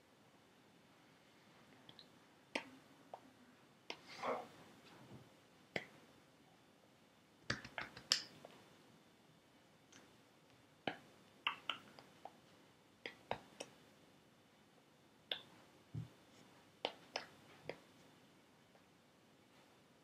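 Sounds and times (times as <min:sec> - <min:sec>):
hands striking each other and chest: 0:07.5 - 0:08.4.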